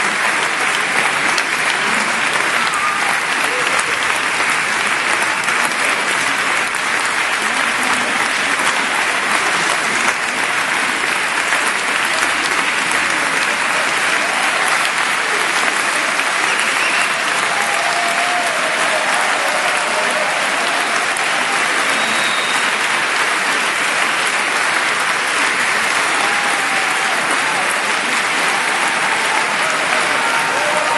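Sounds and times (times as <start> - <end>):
crowd applauding: 0.0 - 30.9.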